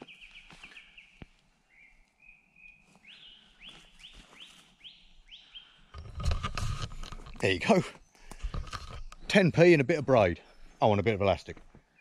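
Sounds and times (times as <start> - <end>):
bird singing: 0.0 - 6.2, 7.4 - 12.0.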